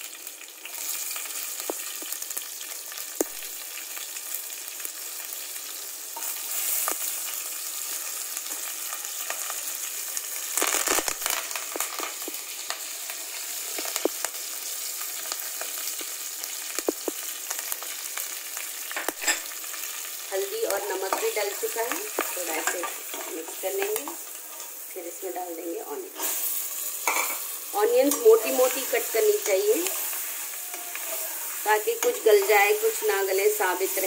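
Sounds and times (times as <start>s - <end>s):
hot oil sizzling: 0.0s - 34.0s
mustard seeds popping: 10.5s - 12.4s, 16.7s - 17.3s.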